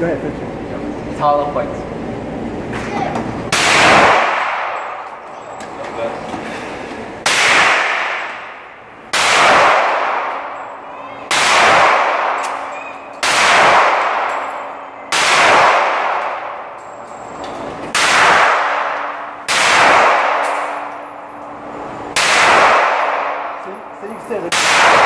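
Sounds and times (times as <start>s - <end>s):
handgun shots echoing: 3.5s - 5.2s, 7.2s - 10.6s, 11.3s - 16.8s, 17.9s - 21.0s, 22.2s - 23.6s, 24.5s - 25.0s.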